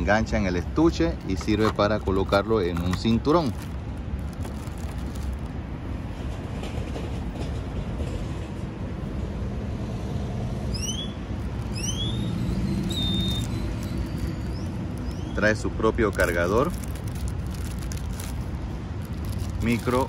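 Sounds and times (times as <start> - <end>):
road traffic rumble: 0.0 - 20.0
wind: 0.0 - 20.0
short rising whistles: 10.7 - 15.4.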